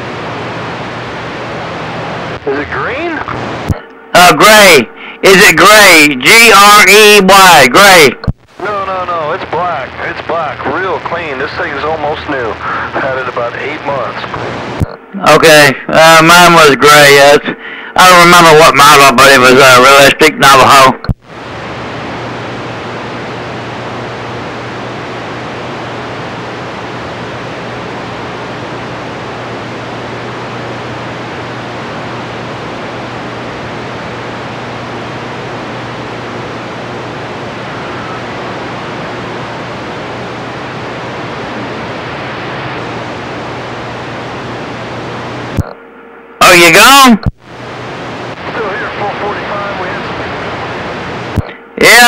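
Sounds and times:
radio static hiss: 0.0 - 45.8, 46.4 - 52.0
low hum: 21.2 - 46.4.

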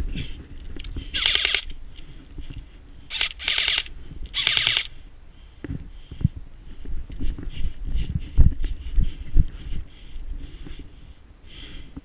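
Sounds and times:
airsoft rifle bursts: 1.1 - 1.7, 3.1 - 4.9.

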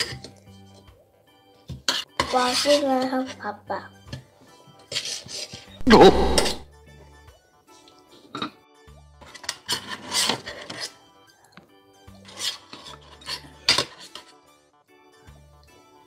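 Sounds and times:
metal spoon scraping a steel tray: 1.9 - 3.4, 4.8 - 6.6, 9.2 - 11.0, 12.2 - 14.4.

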